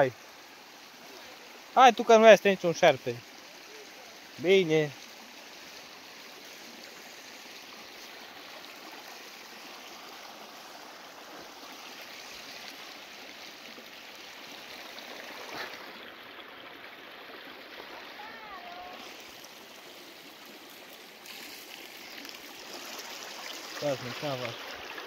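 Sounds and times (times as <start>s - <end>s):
spring water running: 0.0s - 25.0s.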